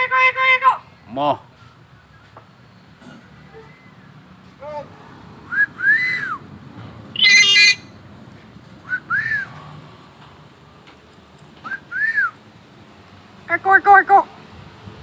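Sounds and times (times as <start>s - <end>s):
myna whistling: 5.5s - 6.4s, 7.2s - 7.9s, 8.9s - 9.5s, 11.6s - 12.4s
short bird call: 7.2s - 7.9s
bird harsh squawk: 7.2s - 8.0s.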